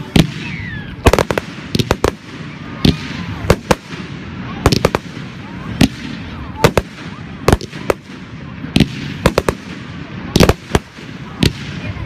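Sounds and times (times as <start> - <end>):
fireworks bursting with sharp bangs: 0.0 - 12.0.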